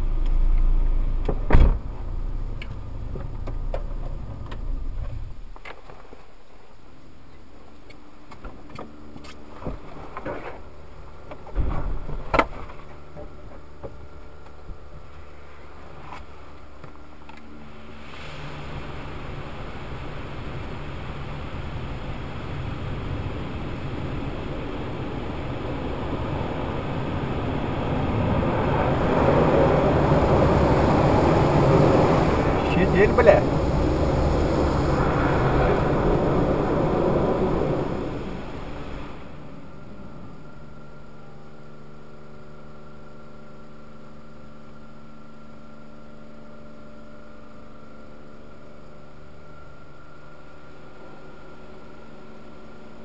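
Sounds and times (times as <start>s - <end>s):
car engine idling: 0.0s - 5.6s, 15.8s - 42.4s.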